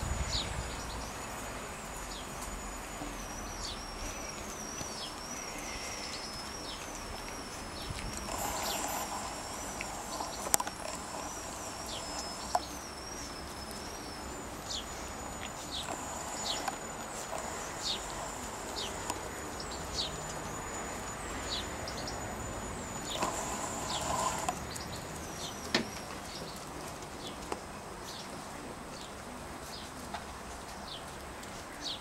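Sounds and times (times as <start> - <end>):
high sweeping calls: 0.0 - 26.6
small birds chirping: 0.0 - 30.0
sharp clicks: 4.4 - 14.1.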